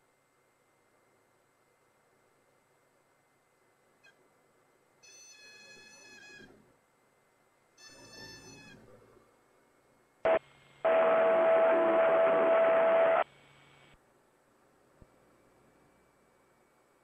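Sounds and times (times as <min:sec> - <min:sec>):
radio static with steady tone: 0:10.2 - 0:14.0
radio click-burst: 0:10.3 - 0:13.2.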